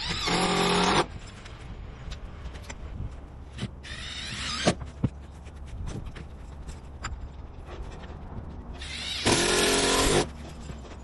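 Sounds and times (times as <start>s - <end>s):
power drill whining: 8.8s - 10.3s.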